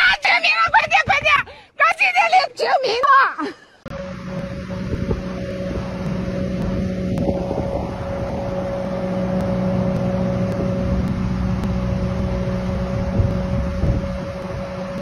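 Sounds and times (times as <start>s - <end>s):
engine running steadily: 3.9s - 15.0s.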